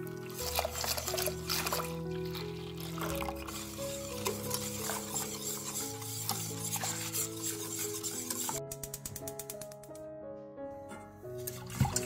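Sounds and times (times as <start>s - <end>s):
whisk beating in metal bowl: 0.4s - 8.6s.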